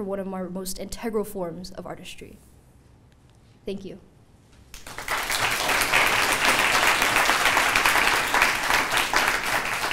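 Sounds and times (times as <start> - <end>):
audience applauding: 4.8 - 9.9.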